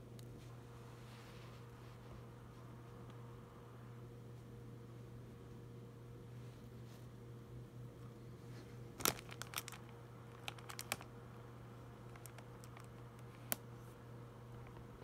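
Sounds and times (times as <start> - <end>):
steady low hum: 0.0 - 15.0
hands handling clicks and crinkles: 9.0 - 11.1, 12.0 - 13.7, 14.5 - 14.9.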